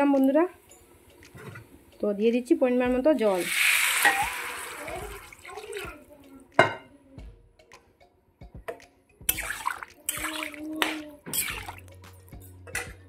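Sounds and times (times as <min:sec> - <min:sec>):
water dripping and splashing: 0:03.3 - 0:06.0, 0:09.3 - 0:12.1.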